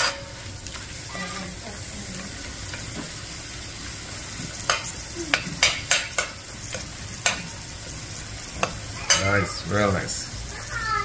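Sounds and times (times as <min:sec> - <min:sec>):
metal spoon scraping a pot: 0:00.0 - 0:00.4
food sizzling in a pot: 0:00.0 - 0:11.0.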